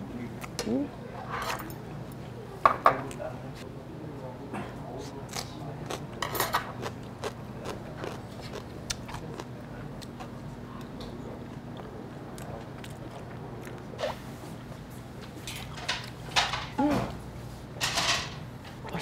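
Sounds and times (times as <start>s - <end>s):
steady low hum: 0.0s - 19.0s
person biting and chewing: 6.8s - 10.1s.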